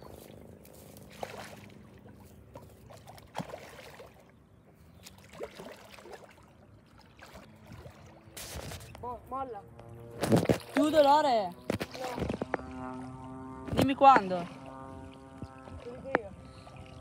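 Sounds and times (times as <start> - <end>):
fish splashing in water: 0.8 - 4.4, 5.0 - 9.0.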